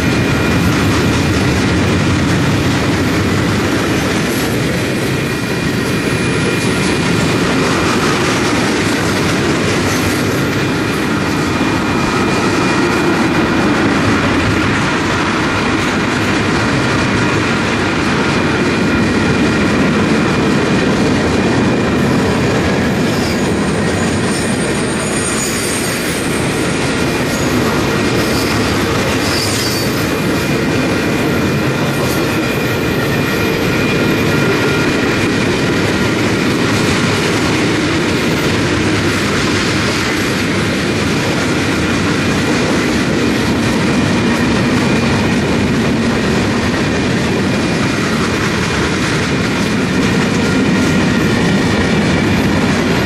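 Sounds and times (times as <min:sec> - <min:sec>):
steel wheels rolling on rail: 0:00.0 - 0:53.0
wheel squeal: 0:23.1 - 0:26.5, 0:27.3 - 0:30.3.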